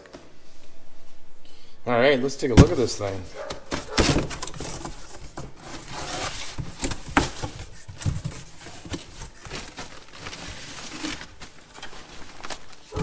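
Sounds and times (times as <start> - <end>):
cardboard flaps scraping and knocking: 3.4 - 13.0
plastic bag crinkling: 3.4 - 13.0.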